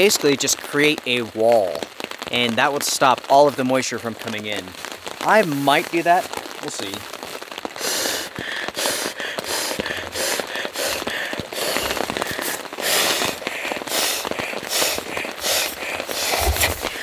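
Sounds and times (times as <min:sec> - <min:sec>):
sleeping pad fabric crinkling: 0:11.5 - 0:17.0.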